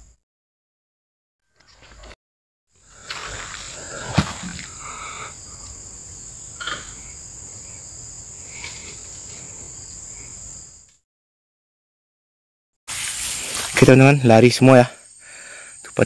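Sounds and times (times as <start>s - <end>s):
insects buzzing: 2.8s - 10.9s, 12.9s - 16.0s.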